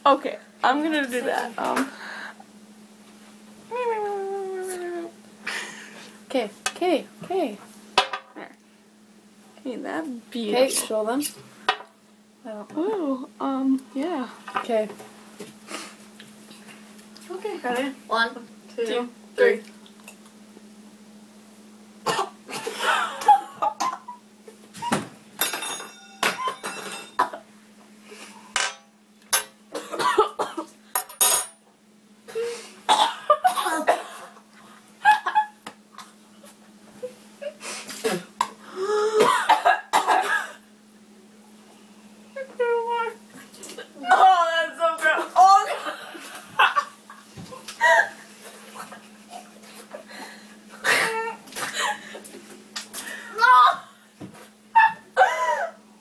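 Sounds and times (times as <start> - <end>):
faint steady hum: 0.0 - 56.0
people coughing and spluttering: 22.0 - 24.1, 29.7 - 30.7, 32.9 - 34.4, 39.1 - 40.6, 55.2 - 55.8
people laughing and gasping: 47.5 - 52.4.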